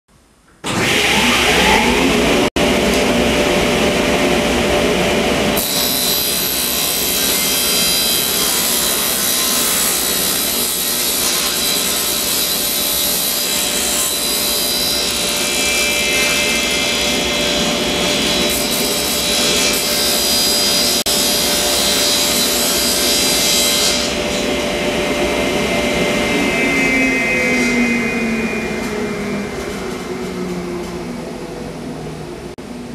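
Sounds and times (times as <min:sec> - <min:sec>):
table saw cutting wood: 0:00.6 - 0:30.7
saw blade winding down: 0:05.6 - 0:24.2.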